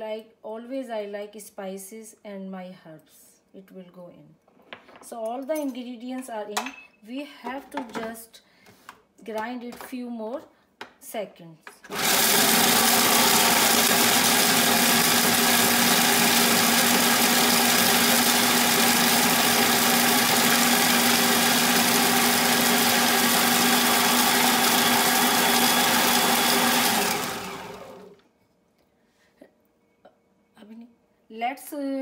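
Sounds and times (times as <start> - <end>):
food processor motor running: 11.9 - 28.2.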